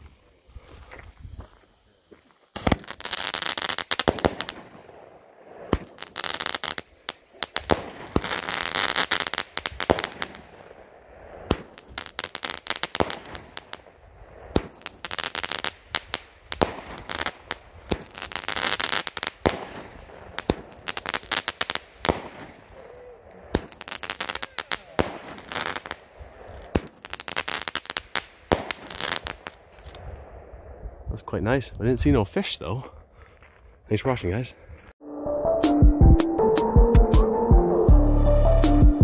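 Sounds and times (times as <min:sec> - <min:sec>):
firework crackling: 0:00.0 - 0:30.5
firework bangs: 0:00.0 - 0:30.6.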